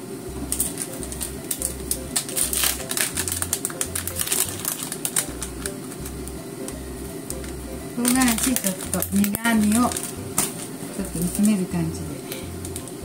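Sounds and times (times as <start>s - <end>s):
background music: 0.0s - 13.0s
plastic pouch crinkling: 0.5s - 6.2s, 7.4s - 11.7s.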